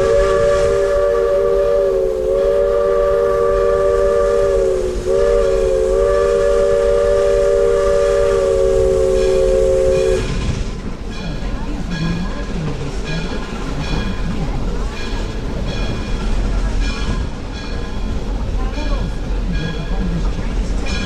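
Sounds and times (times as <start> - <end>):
steam locomotive chime whistle: 0.0 - 10.4.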